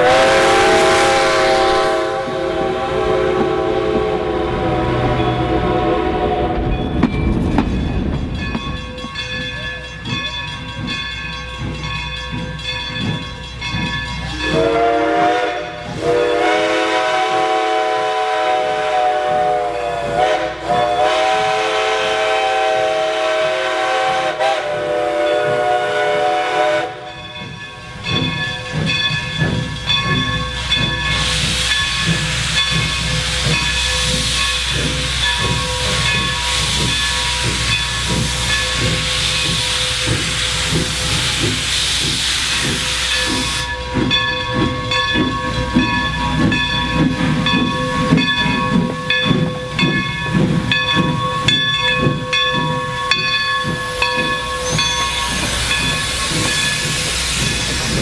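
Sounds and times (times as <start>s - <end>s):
loud steam hissing: 0.0s - 6.6s, 27.9s - 58.0s
steam locomotive whistle: 0.0s - 6.8s, 14.4s - 27.1s.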